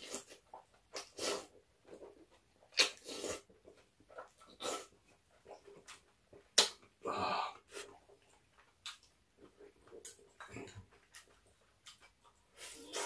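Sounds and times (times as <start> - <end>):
quiet chewing: 0.0 - 13.0
person slurping noodles: 1.0 - 1.5, 2.8 - 3.4, 12.6 - 13.0.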